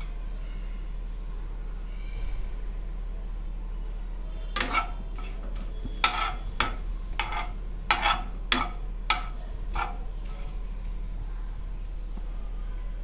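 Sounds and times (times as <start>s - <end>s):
steel spoon scraping a pan: 4.5s - 10.6s.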